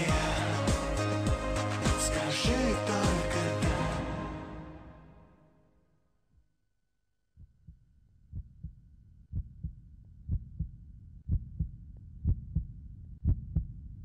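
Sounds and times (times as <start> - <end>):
heartbeat double thump: 7.4 - 13.8.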